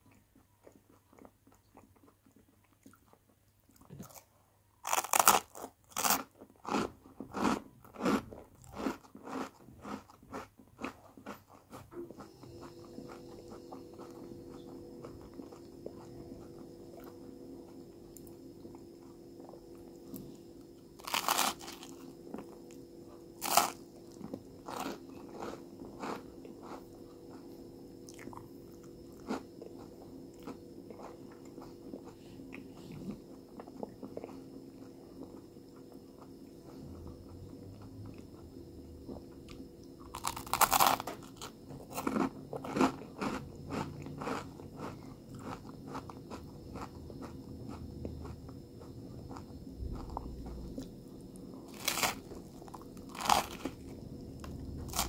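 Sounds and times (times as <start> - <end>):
soft chewing clicks: 0.0 - 4.2, 9.2 - 20.4, 24.0 - 39.9
crunchy bites of toasted bread: 4.8 - 11.4, 21.0 - 22.0, 23.4 - 26.8, 40.1 - 47.3, 51.7 - 52.3, 53.0 - 53.8.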